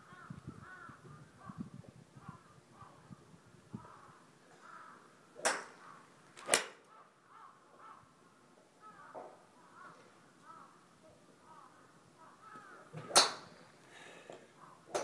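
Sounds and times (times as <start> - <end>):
golf club striking ball: 5.4 - 5.8, 6.4 - 6.9, 13.0 - 13.5.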